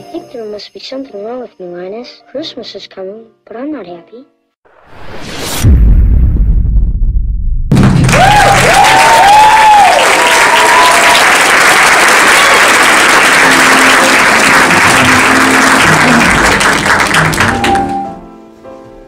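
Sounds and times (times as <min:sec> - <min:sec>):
soft instrumental music: 0:00.0 - 0:04.6, 0:13.3 - 0:19.0
audience applauding: 0:07.8 - 0:18.1.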